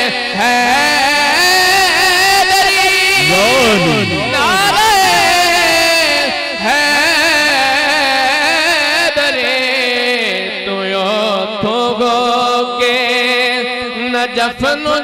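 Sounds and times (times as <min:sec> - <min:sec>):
man singing unaccompanied: 0:00.6 - 0:15.0.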